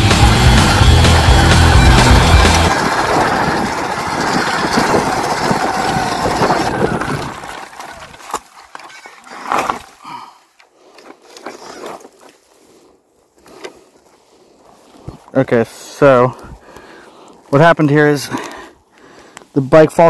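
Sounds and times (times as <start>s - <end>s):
rushing wind and tyre noise: 0.0s - 8.1s.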